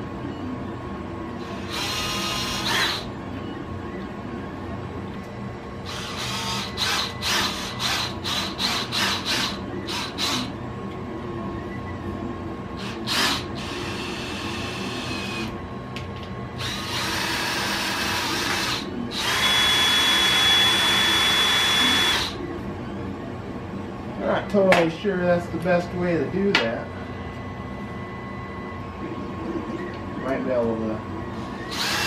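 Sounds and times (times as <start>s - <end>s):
cordless drill whirring: 1.5s - 3.1s, 5.9s - 10.5s, 12.8s - 15.5s, 16.6s - 22.4s, 31.7s - 32.0s.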